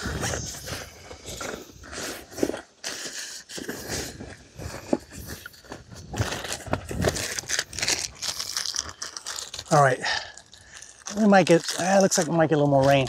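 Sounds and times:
wind rumbling on microphone: 0:00.0 - 0:02.1, 0:03.8 - 0:08.5
rustling and crinkling of nylon: 0:00.0 - 0:13.0.

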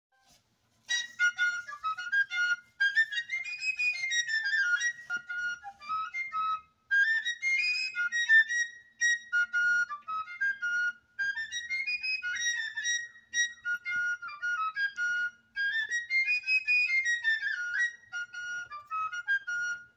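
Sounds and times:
high-pitched flute melody: 0:00.2 - 0:19.9.

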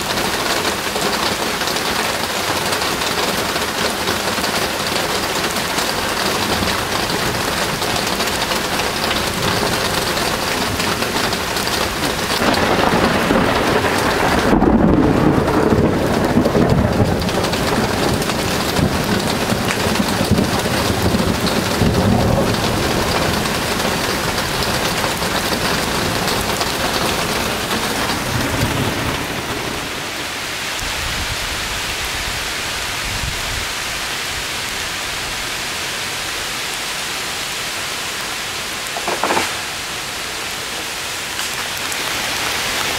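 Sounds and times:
steady rain: 0:00.0 - 0:42.9
thunder rumbling: 0:05.2 - 0:31.6.

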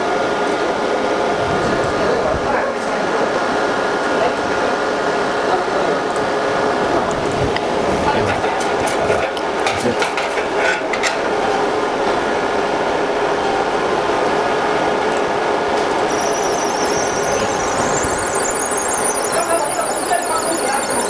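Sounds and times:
high warbling squeal: 0:16.1 - 0:21.0
laser engraving machine whining: 0:16.1 - 0:21.0.

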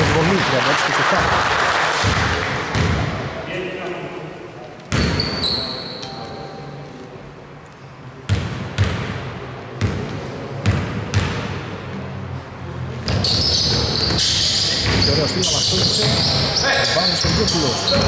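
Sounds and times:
basketball bouncing on hardwood: 0:02.0 - 0:03.1
sneakers squeaking on floor: 0:04.9 - 0:06.4, 0:13.0 - 0:18.0.

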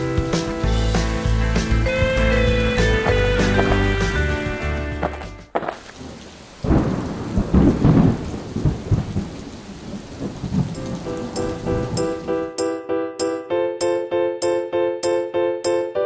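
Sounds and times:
steady rain: 0:00.0 - 0:04.4, 0:05.5 - 0:12.4
thunder rumble: 0:05.9 - 0:12.3.

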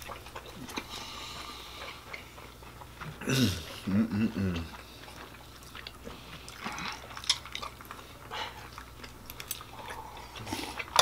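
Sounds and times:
faint chewing: 0:00.0 - 0:11.0.

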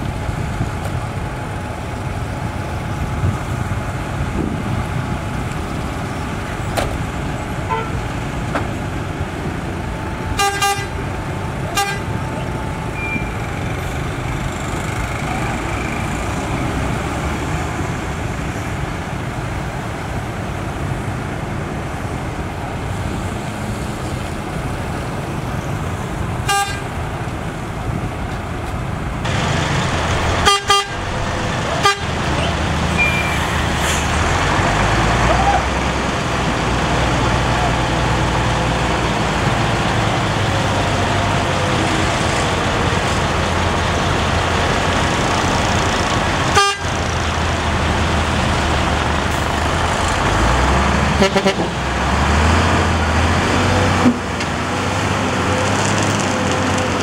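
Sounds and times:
heavy truck engine running: 0:00.0 - 0:57.0
truck horn toots: 0:07.7 - 0:08.0, 0:10.4 - 0:11.0, 0:11.7 - 0:12.4, 0:26.4 - 0:26.9, 0:30.3 - 0:33.8, 0:46.5 - 0:47.0, 0:51.1 - 0:51.8.

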